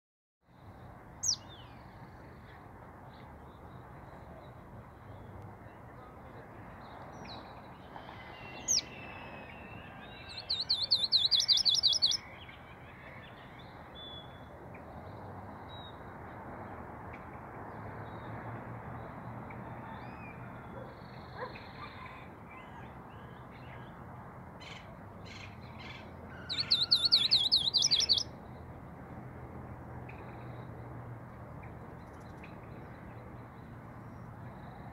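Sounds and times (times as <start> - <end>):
bird trilling song: 1.2 - 1.7, 8.1 - 12.6, 24.7 - 28.3
bird chirps: 8.2 - 12.3, 26.4 - 28.2.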